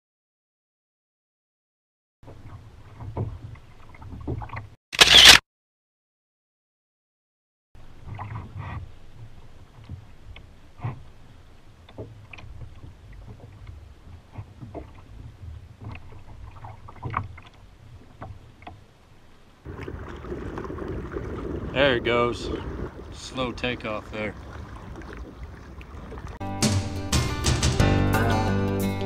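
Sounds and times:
water lapping against kayak hull: 2.2 - 4.8, 7.8 - 26.4
wind rumble on microphone: 19.7 - 26.4.

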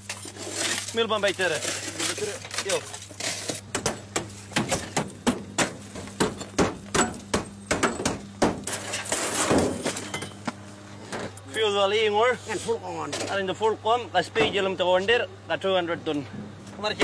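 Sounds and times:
broken glass crunching: 0.0 - 3.6.

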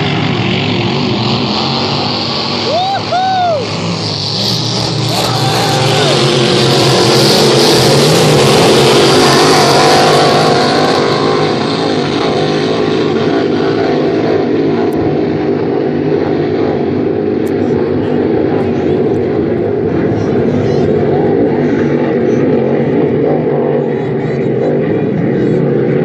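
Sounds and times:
racing boat engines droning: 0.0 - 26.0.

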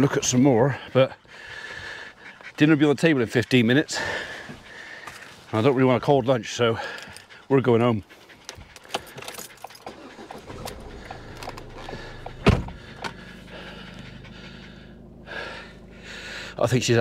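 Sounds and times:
keys rattling in ignition: 6.8 - 7.4, 8.4 - 17.0
car engine starting and idling: 8.7 - 17.0
loud thump: 12.2 - 13.2.

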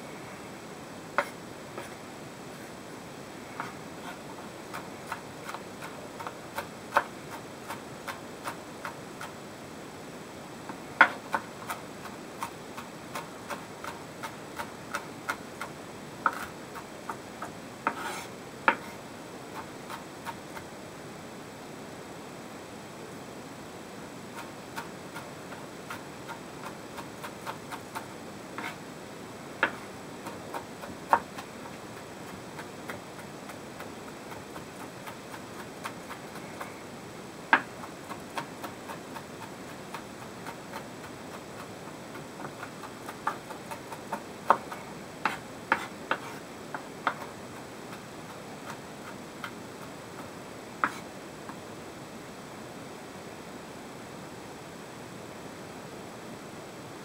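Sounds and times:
steady hiss: 0.0 - 57.0.

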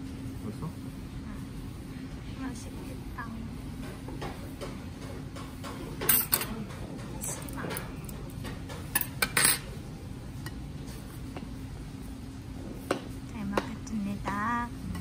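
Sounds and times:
dining-room background: 0.0 - 15.0
cutlery clinking against plates: 6.0 - 9.7.

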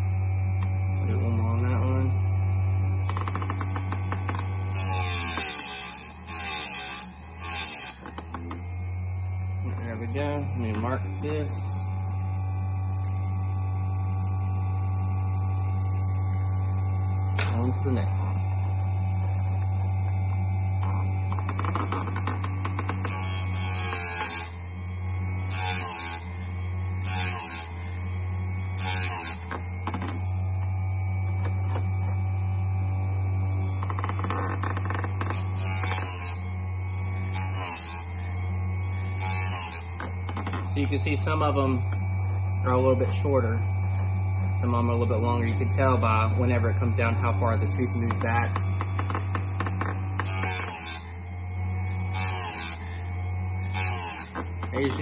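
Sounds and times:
chain sharpener motor humming: 0.0 - 55.0
grinding wheel hissing on metal: 0.0 - 55.0.

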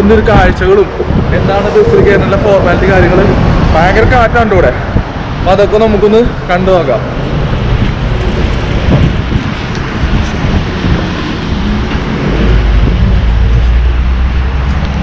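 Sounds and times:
street traffic: 0.0 - 15.0
wind buffeting microphone: 0.0 - 15.0
low rumble: 7.1 - 15.0.

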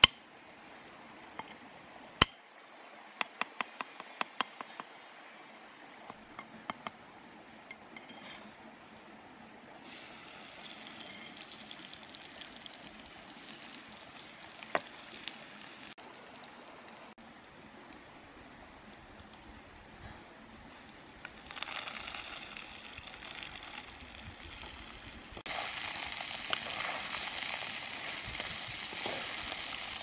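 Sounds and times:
knife tapping on stone: 3.2 - 4.9
oil sizzling in a pan: 9.8 - 17.2, 21.2 - 30.0
shallow stream rushing: 21.4 - 30.0.

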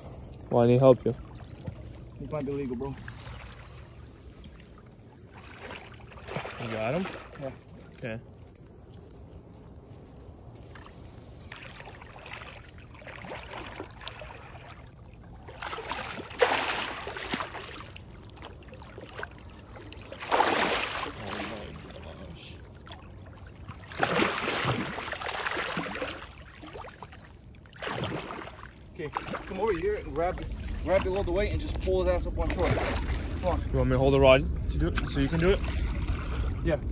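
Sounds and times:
fish splashing in water: 10.7 - 22.0, 22.7 - 29.6.

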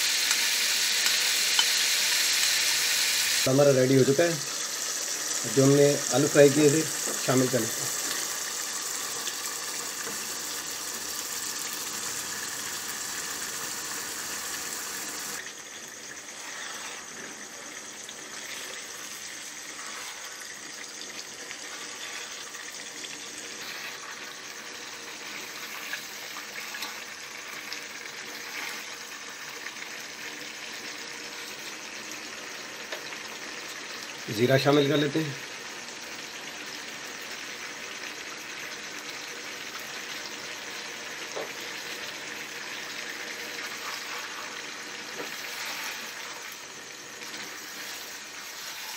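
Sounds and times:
potatoes sizzling in oil: 0.0 - 48.9
spatula scraping: 16.2 - 17.5, 18.3 - 20.5, 21.5 - 22.6, 23.5 - 24.3, 25.2 - 29.0, 43.6 - 46.5, 47.2 - 48.9.

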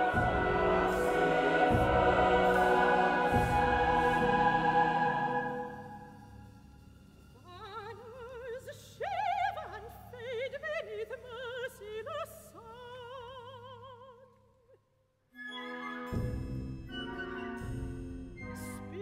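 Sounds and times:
operatic soprano singing: 0.0 - 6.2, 7.4 - 14.3
orchestra playing: 0.0 - 6.2.

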